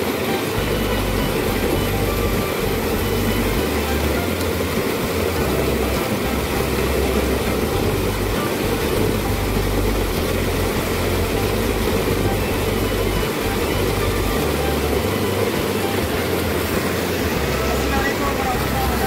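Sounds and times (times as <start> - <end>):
water rushing through channel: 0.0 - 19.0.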